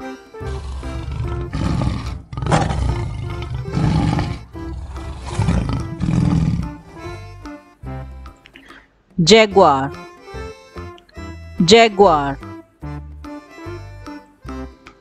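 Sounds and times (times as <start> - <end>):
light background music: 0.0 - 15.0
big cat roaring and growling: 0.4 - 7.1.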